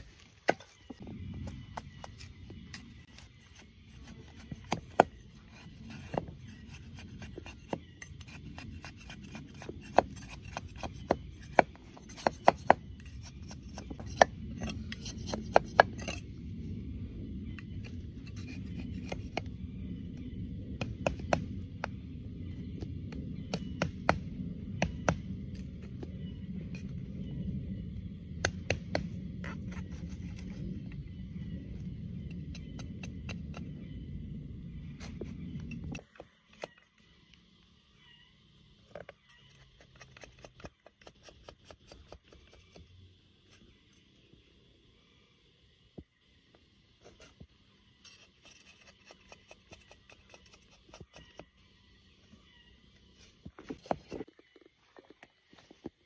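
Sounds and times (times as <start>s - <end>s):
low steady rumble: 0.0s - 40.8s.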